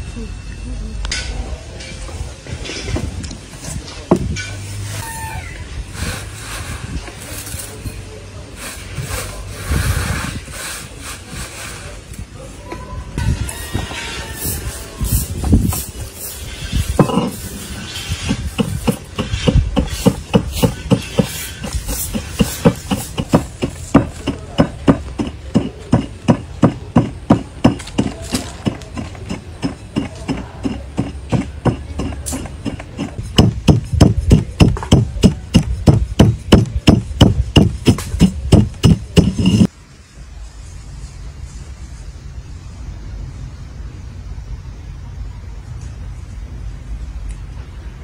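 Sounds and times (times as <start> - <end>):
pestle knocking in metal mortar: 17.0 - 17.4, 18.1 - 39.7.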